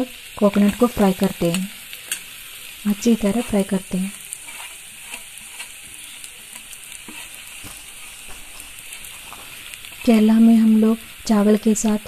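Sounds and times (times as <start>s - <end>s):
coconut sizzling in oil: 0.0s - 12.0s
spoon scraping steel bowl: 4.3s - 7.4s.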